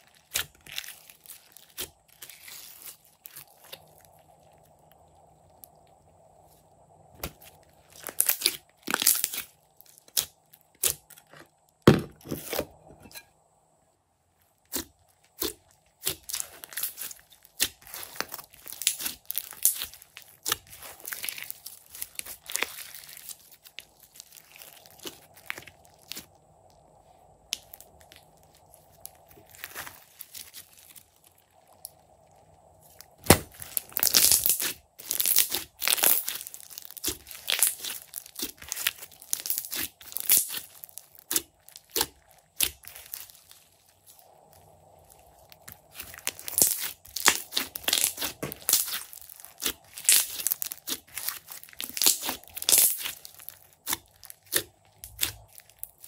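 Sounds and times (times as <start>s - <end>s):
slime crackling and popping: 0.0s - 6.1s, 6.8s - 11.8s, 14.6s - 56.0s.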